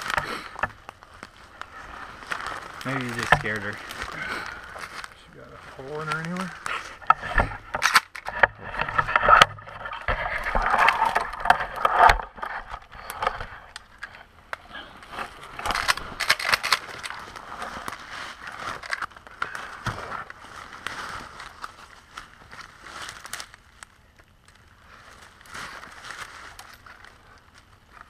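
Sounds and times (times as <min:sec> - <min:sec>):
footsteps crunching through dry leaves: 0:00.0 - 0:07.0, 0:19.5 - 0:24.0, 0:24.8 - 0:27.4.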